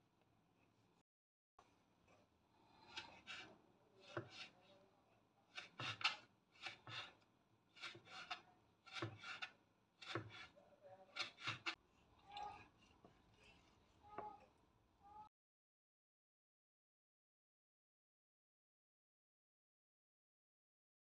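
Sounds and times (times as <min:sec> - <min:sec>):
knife strokes on wooden board: 0:02.8 - 0:04.7, 0:05.5 - 0:07.2, 0:07.8 - 0:12.8.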